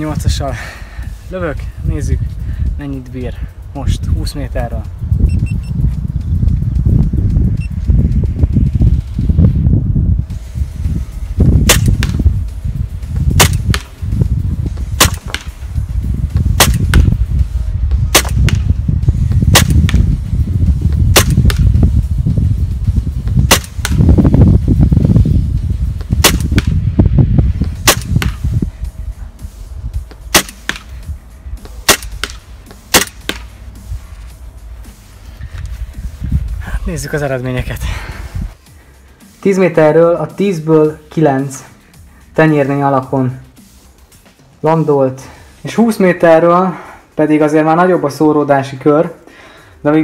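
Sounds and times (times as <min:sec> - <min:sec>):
low rumble: 0:00.0 - 0:39.2
airsoft pistol shots: 0:11.6 - 0:12.2, 0:13.4 - 0:13.9, 0:15.0 - 0:15.6, 0:16.6 - 0:17.1, 0:18.1 - 0:18.7, 0:19.5 - 0:20.0, 0:21.1 - 0:21.7, 0:23.4 - 0:24.1, 0:26.2 - 0:26.8, 0:27.8 - 0:28.4, 0:30.3 - 0:30.9, 0:31.8 - 0:33.5.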